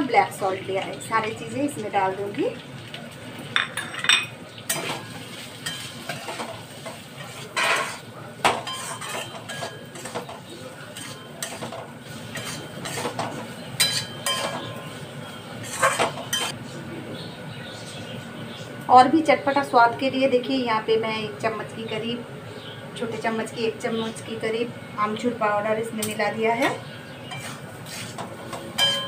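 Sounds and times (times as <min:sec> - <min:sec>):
metal spatula scraping metal pan: 0:05.6 - 0:14.9, 0:15.6 - 0:16.6, 0:26.0 - 0:29.0.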